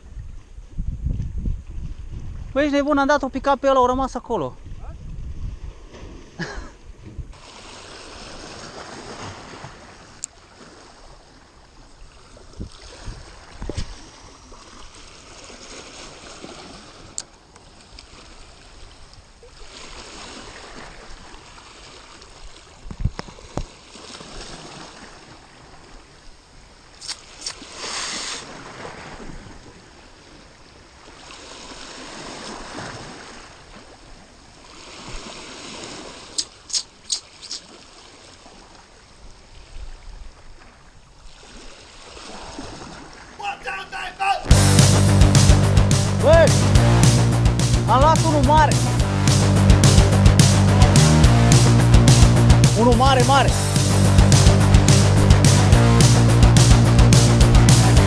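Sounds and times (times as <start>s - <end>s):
sea waves splashing over rocks: 7.4s - 39.7s, 40.6s - 44.5s.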